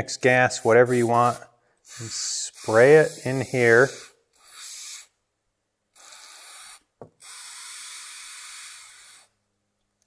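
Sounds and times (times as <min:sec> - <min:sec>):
aerosol can spray hissing: 0:00.6 - 0:05.1, 0:06.0 - 0:09.3.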